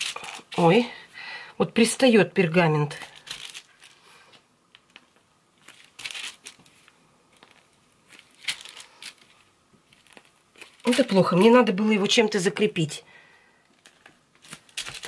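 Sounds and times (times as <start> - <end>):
piping bag crinkling: 0.0 - 0.8, 2.9 - 4.1, 4.8 - 11.8, 13.7 - 15.0
baking parchment rustling: 0.0 - 1.0, 2.9 - 12.2, 13.7 - 15.0.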